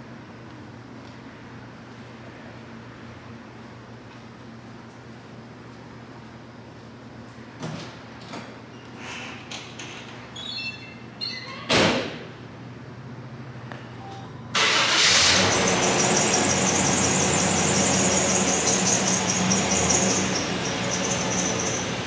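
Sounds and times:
car engine starting and idling: 14.5 - 22.0.

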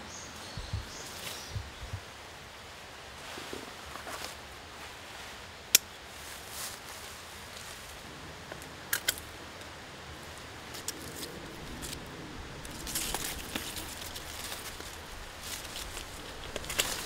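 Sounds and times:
quiet rustling: 8.6 - 17.0.

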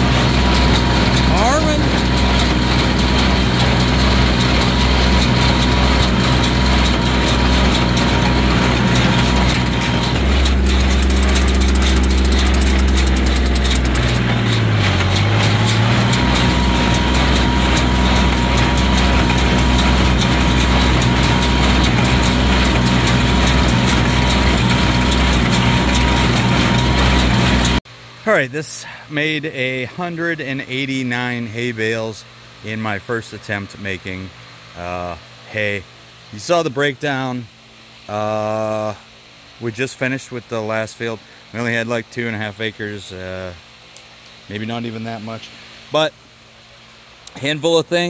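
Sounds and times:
tractor engine under load: 0.0 - 27.8.

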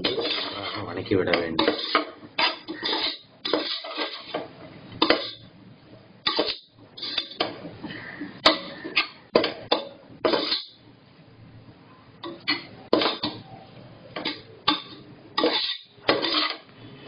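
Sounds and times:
metal spoon scraping pot: 0.0 - 1.0, 1.6 - 5.5, 6.2 - 7.5, 8.4 - 10.8, 12.2 - 13.4, 14.2 - 16.7.

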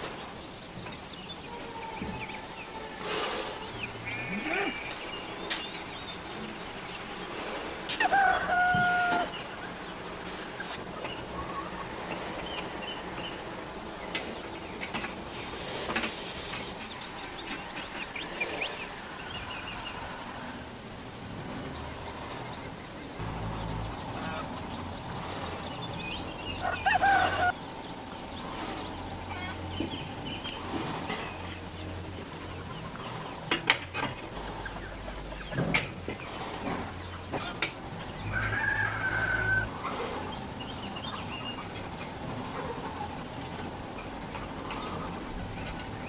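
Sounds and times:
birds chirping: 0.0 - 46.0
rooster crowing: 1.4 - 4.9, 7.9 - 9.6, 26.3 - 27.6, 38.2 - 40.0.

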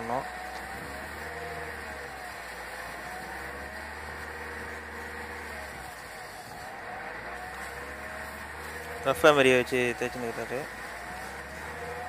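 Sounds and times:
car engine running: 0.0 - 12.0
sandpaper hissing against brake disc: 0.0 - 12.0.

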